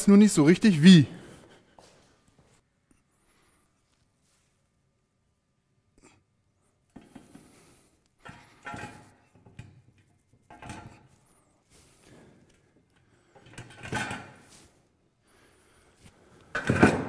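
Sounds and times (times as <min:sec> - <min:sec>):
metal frame pieces scraping and clunking: 0:08.3 - 0:09.4.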